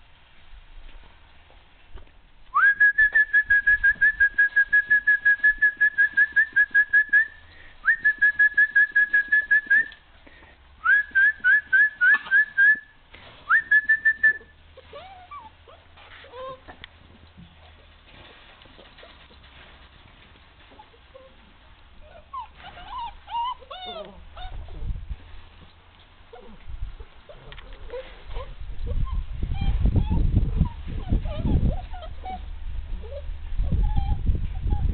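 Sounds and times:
puppies whimpering: 0:14.8 - 0:16.8, 0:22.0 - 0:24.9, 0:27.2 - 0:34.9.

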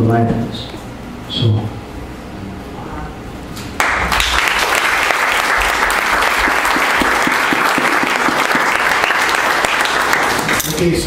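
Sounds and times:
audience applauding: 0:03.8 - 0:10.8.

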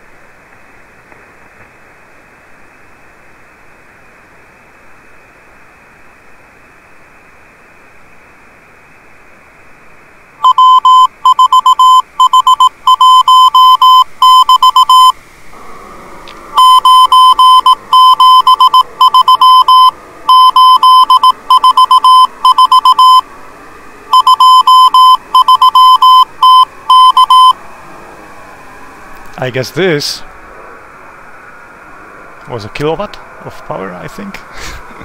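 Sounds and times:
morse code tone: 0:10.4 - 0:15.2, 0:16.5 - 0:23.3, 0:24.1 - 0:27.6
radio hiss: 0:11.6 - 0:23.3, 0:29.1 - 0:30.8, 0:32.4 - 0:35.0.

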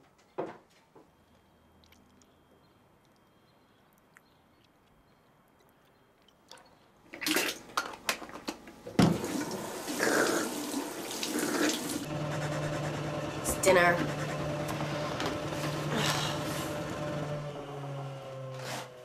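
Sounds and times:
sink tap running: 0:09.0 - 0:16.3.

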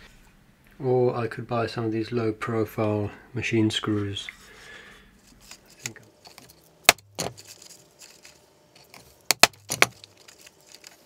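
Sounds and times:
hand punch clicking: 0:09.3 - 0:10.0.

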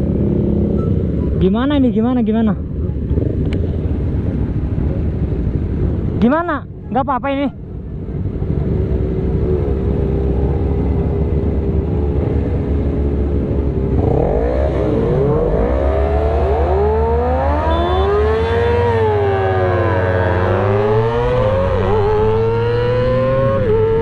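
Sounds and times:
motorcycles revving: 0:00.0 - 0:01.9, 0:07.7 - 0:24.0
motorcycle accelerating through gears: 0:08.6 - 0:24.0.

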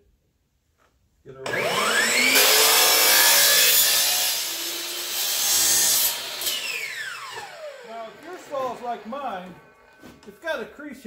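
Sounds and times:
miter saw cutting vinyl flooring: 0:01.4 - 0:10.3
saw blade winding down whine: 0:01.5 - 0:10.0.

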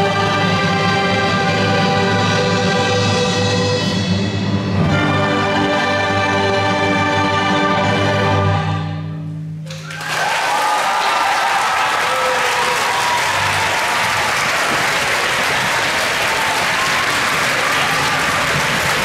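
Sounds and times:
audience applauding: 0:09.7 - 0:19.0
audience cheering: 0:09.7 - 0:19.0.

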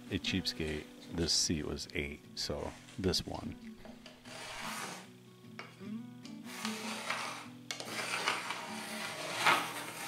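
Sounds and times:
pencil scratching on plywood: 0:04.2 - 0:05.1, 0:06.5 - 0:10.0.

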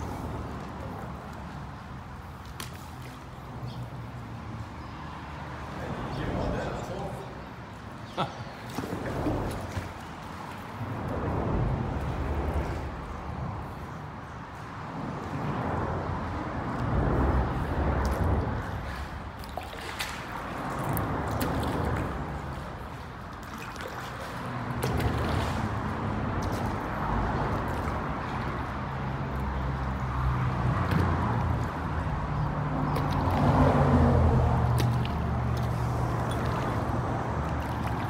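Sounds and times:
water sloshing from paddle strokes: 0:08.3 - 0:13.9, 0:17.5 - 0:38.0.

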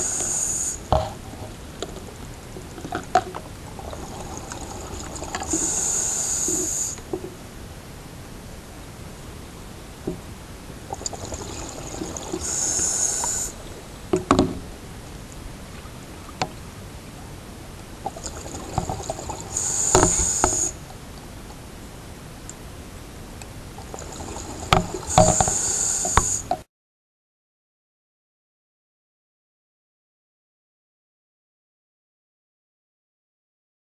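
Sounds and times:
scuba regulator breathing: 0:00.0 - 0:01.2, 0:04.2 - 0:07.1, 0:10.9 - 0:13.7, 0:18.5 - 0:20.8, 0:24.0 - 0:26.6.

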